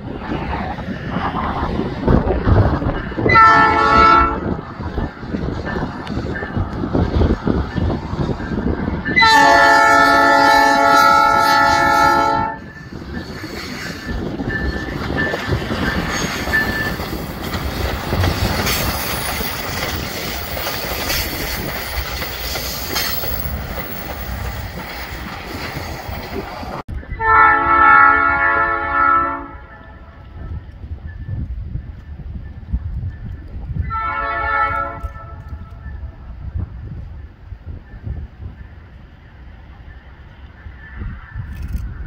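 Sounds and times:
train horn blast: 3.2 - 4.6, 9.2 - 12.7, 27.2 - 30.2, 33.9 - 35.8
train wheels clattering over rail joints: 12.8 - 26.8.

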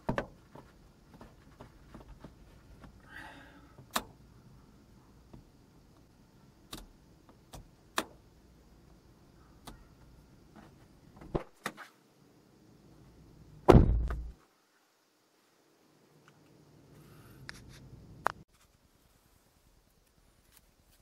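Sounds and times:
heavy thump: 13.7 - 14.4.

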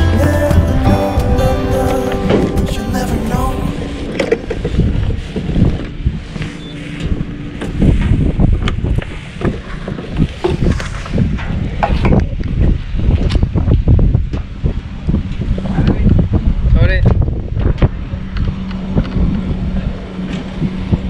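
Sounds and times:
wind buffeting microphone: 0.6 - 21.0.

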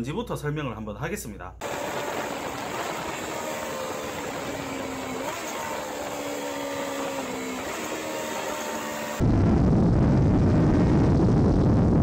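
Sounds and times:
motorcycle engine running: 1.6 - 9.2
wind rushing over microphone: 9.2 - 12.0.

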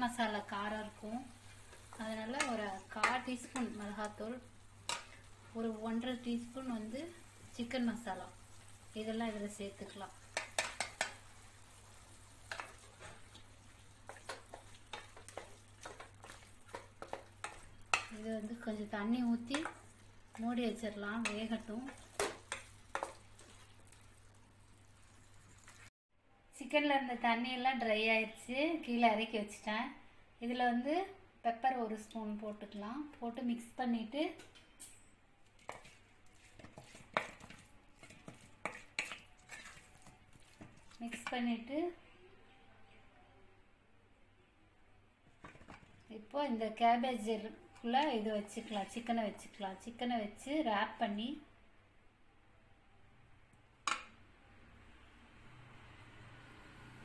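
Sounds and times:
low sizzle: 0.0 - 25.9, 31.6 - 42.5, 45.2 - 51.4
spatula scraping a pan: 4.8 - 5.6, 8.4 - 24.0, 35.6 - 41.4
spatula scraping a steel pan: 35.6 - 40.2.

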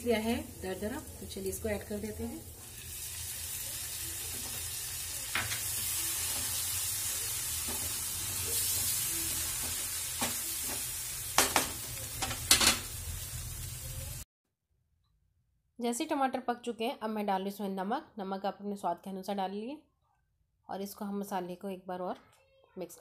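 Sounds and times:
paste sizzling in hot oil: 0.0 - 14.2.

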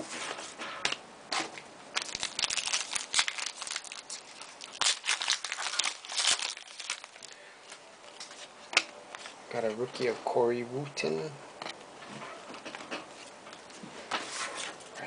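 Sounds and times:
plastic wrapper crinkling and tearing: 1.9 - 7.4.

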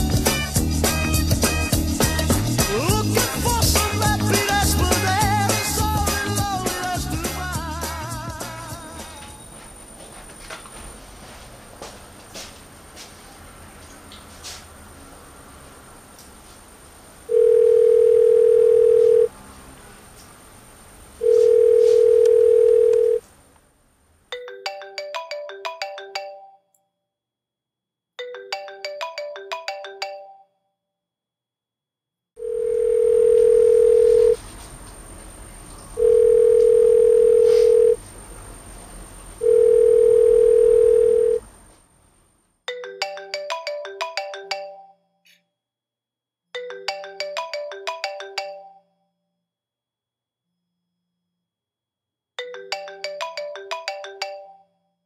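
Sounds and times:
melodic mobile phone ringtone: 17.3 - 19.3, 21.2 - 23.2, 24.4 - 26.7, 28.2 - 30.6, 32.4 - 34.4, 36.0 - 38.0, 39.4 - 41.4, 42.7 - 45.2, 46.6 - 49.1, 52.4 - 54.8
telephone ringback beep: 17.3 - 19.3, 21.2 - 23.2, 32.4 - 34.4, 36.0 - 38.0, 39.4 - 41.4.

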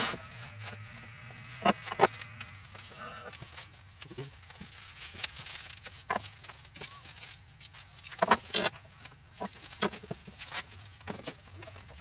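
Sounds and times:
metal clamps clinking and rattling: 8.0 - 8.8.

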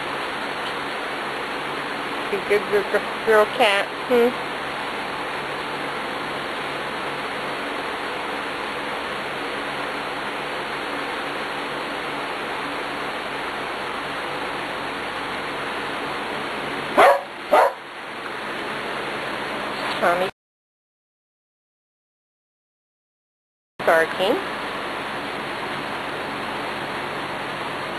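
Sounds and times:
dog barking: 17.0 - 17.8.

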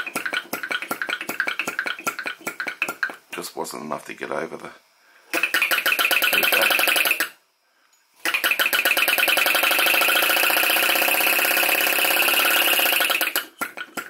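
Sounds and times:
flywheel flick: 5.4 - 7.3, 8.3 - 14.0
small engine rhythmic beat: 5.4 - 7.3, 8.2 - 14.0.

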